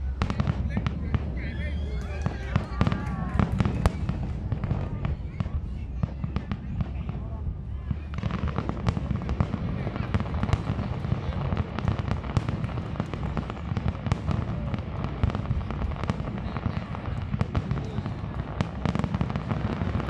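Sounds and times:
continuous low rumble: 0:00.0 - 0:20.0
fireworks bangs and crackles: 0:00.0 - 0:20.0.

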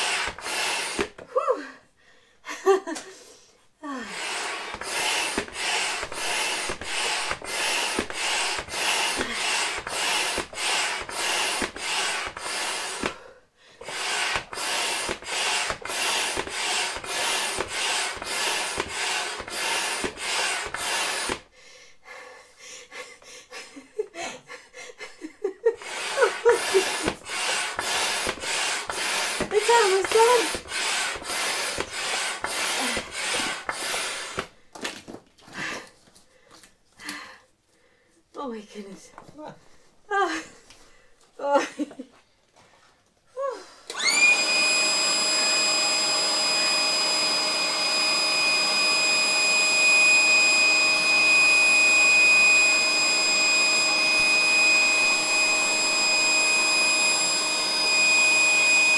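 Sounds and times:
hand pump strokes rushing air: 0:00.0 - 0:01.2, 0:04.1 - 0:13.2, 0:13.8 - 0:21.4, 0:25.8 - 0:34.5.

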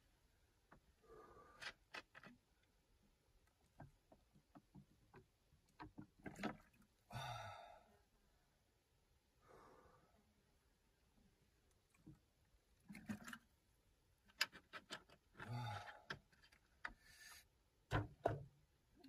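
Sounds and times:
breathy sigh: 0:07.1 - 0:07.9, 0:15.5 - 0:16.1.

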